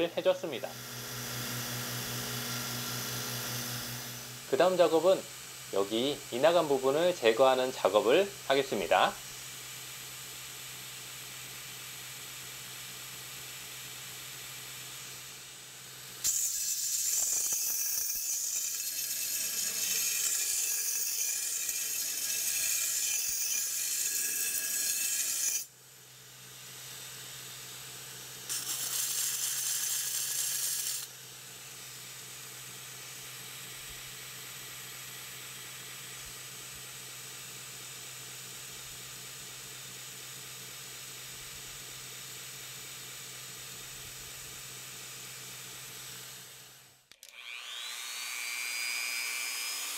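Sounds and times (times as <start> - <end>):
belt grinder hissing: 0.0 - 8.1, 16.2 - 25.7, 28.4 - 32.1
knife blade grinding on belt: 16.2 - 25.7, 28.5 - 31.1.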